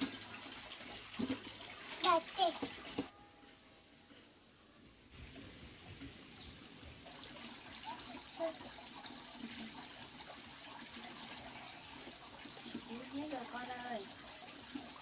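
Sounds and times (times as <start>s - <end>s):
hot oil sizzling: 0.0s - 3.1s.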